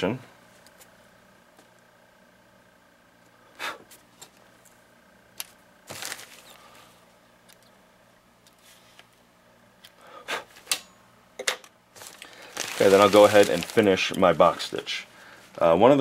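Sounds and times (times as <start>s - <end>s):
faint steady hum: 0.0s - 16.0s
fabric rustling: 12.0s - 14.0s.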